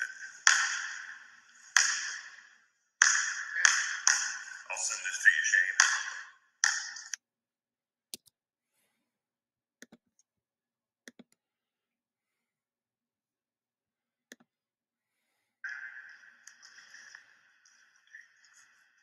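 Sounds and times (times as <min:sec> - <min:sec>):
room noise: 0:00.0 - 0:07.2
computer mouse clicks: 0:08.1 - 0:08.4, 0:09.8 - 0:10.3, 0:11.1 - 0:11.4, 0:14.3 - 0:14.5.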